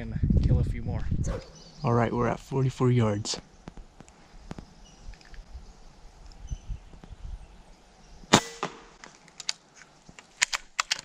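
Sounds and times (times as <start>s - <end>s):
air rifle shot crack: 8.3s - 9.0s.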